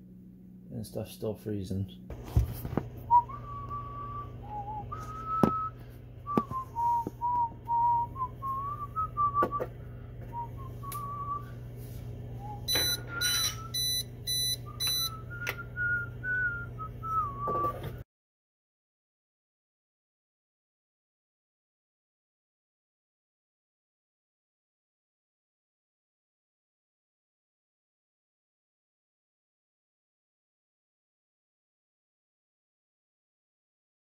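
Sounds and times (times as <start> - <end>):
steady low hum: 0.0 - 18.0
man whistling a tune: 3.1 - 9.7, 10.3 - 11.5, 12.4 - 18.0
short high-pitched electronic beeps: 12.7 - 15.1.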